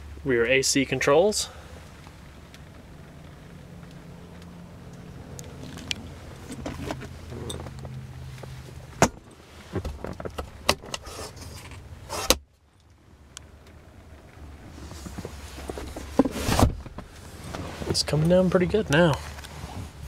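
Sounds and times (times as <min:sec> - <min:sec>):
low hum: 0:01.5 - 0:10.4.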